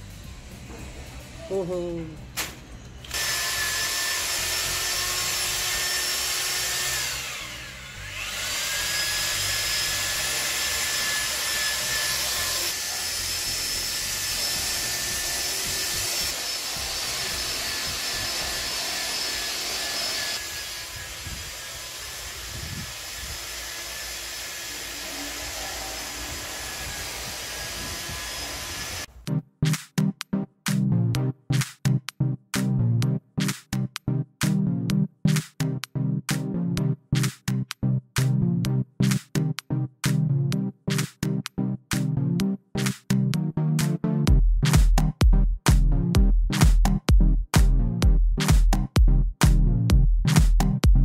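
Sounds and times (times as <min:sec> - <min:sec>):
electric drill mixing paste: 0:03.1 - 0:29.1.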